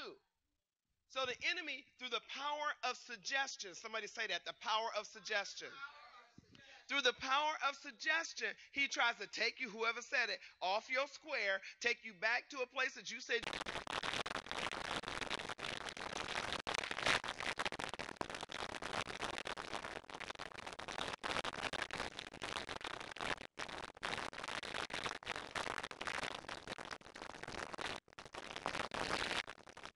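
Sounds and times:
crackling static with clicks: 12.4 - 29.9.

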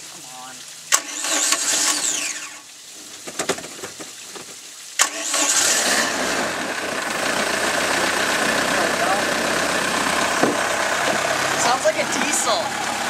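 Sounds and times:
engine starter cranking: 0.9 - 2.5, 5.0 - 11.6
boat engine running: 5.7 - 13.0.

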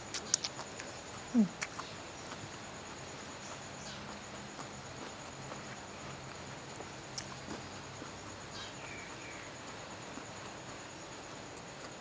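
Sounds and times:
crunchy clicks: 0.0 - 2.6
high-pitched insect trill: 0.0 - 12.0
quiet chewing: 0.0 - 12.0.

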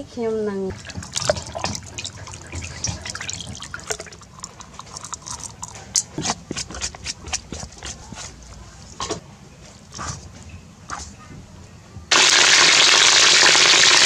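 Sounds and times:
spoon scraping metal bowl: 0.7 - 9.2.

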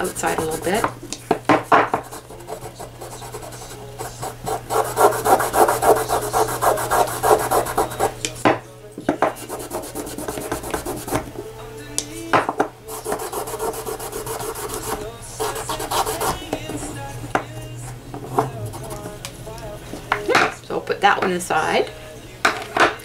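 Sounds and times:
cloth rubbing on painted wood: 0.0 - 0.9, 2.0 - 8.2, 9.3 - 11.3, 12.9 - 17.0, 18.2 - 19.2.

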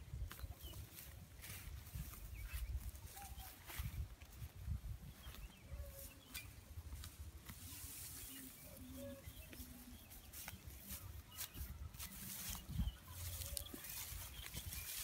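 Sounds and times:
wind rumble on microphone: 0.0 - 6.1, 11.6 - 15.0
dry straw rustling and crackling: 0.1 - 15.0.

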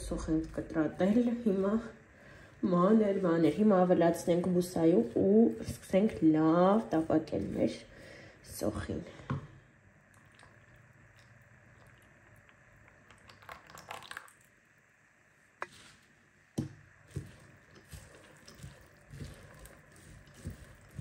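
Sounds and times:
oil pouring: 10.1 - 14.7.

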